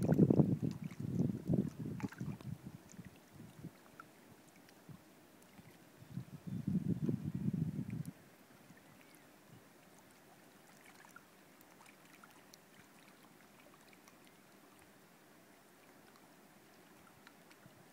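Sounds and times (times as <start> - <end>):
small waves lapping: 0.0 - 6.2, 8.0 - 17.9
faint ticks: 15.8 - 17.7.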